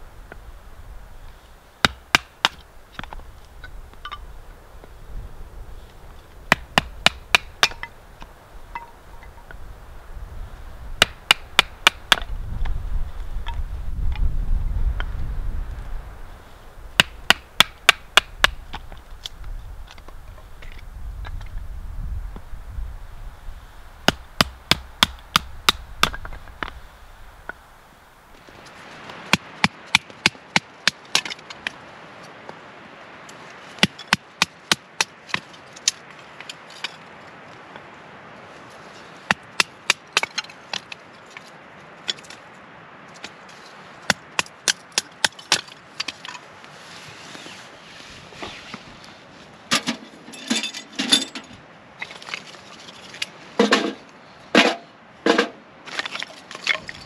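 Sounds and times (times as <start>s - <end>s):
split wood pieces clattering: 54.6s - 57.0s.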